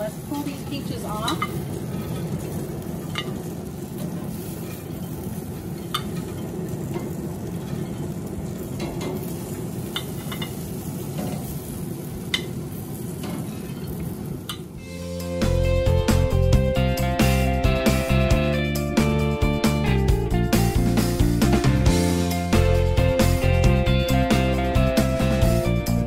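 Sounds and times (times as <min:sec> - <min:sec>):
fruit sizzling on a grill: 0:00.0 - 0:19.0
music: 0:14.8 - 0:26.0.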